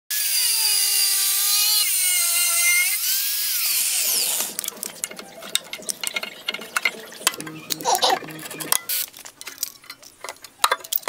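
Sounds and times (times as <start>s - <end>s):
angle grinder cutting steel: 0.1s - 9.1s.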